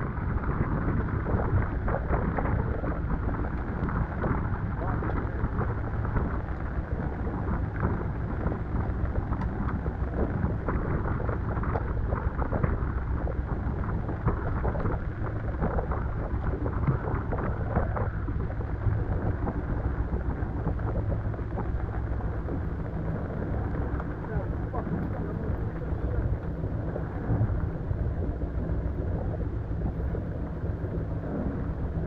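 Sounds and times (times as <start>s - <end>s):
crackles: 0.0s - 32.0s
wind buffeting microphone: 0.0s - 32.0s
water rushing: 14.2s - 32.0s.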